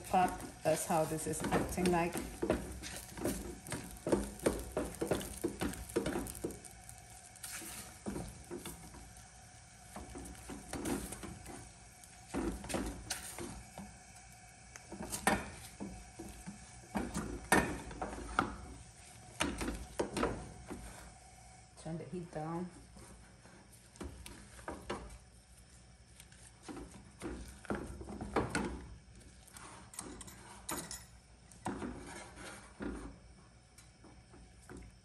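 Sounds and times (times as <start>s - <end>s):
spatula scraping dough in pan: 0.0s - 9.2s, 31.6s - 33.2s.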